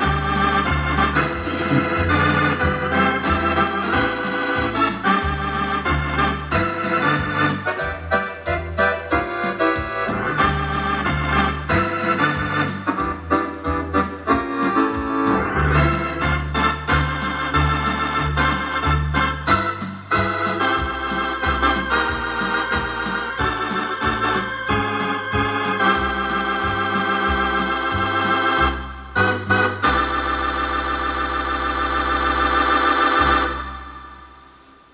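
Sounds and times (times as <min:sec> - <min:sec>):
electronic organ playing chords: 0:00.0 - 0:34.9
steady drum beat: 0:01.1 - 0:07.2.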